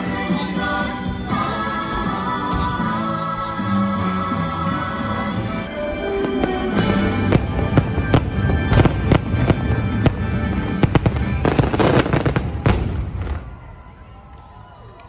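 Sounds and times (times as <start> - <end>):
music: 0.0 - 14.8
fireworks bangs: 5.9 - 14.0.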